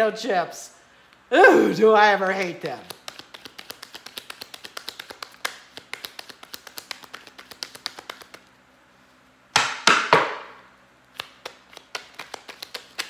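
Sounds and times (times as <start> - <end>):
cards being shuffled: 2.3 - 8.5, 11.1 - 13.0
loud sharp knocks: 9.6 - 10.6.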